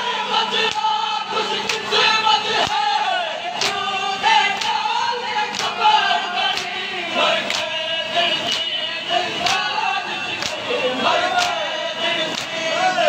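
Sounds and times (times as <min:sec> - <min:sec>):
men chanting in unison: 0:00.0 - 0:13.0
hands slapping chests: 0:01.6 - 0:01.9, 0:03.6 - 0:03.8, 0:04.6 - 0:04.8, 0:05.5 - 0:05.8, 0:06.5 - 0:06.8, 0:07.5 - 0:07.7, 0:08.5 - 0:08.7, 0:09.4 - 0:09.7, 0:10.4 - 0:10.6, 0:11.4 - 0:11.6, 0:12.3 - 0:12.6.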